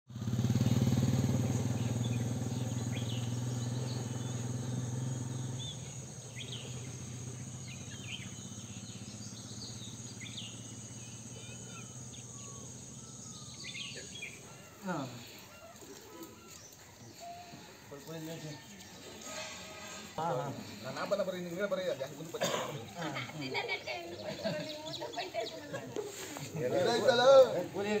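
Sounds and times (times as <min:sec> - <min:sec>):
birds chirping: 0:00.2 - 0:28.0
insects buzzing: 0:00.2 - 0:28.0
sliding whistled bird calls: 0:18.6 - 0:20.3.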